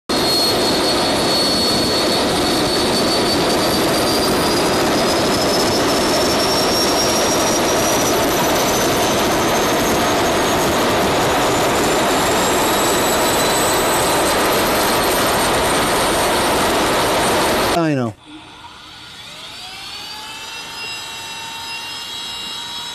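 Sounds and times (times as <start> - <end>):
jet engine roaring: 0.1 - 17.8
jet engine whine rising: 0.1 - 22.9.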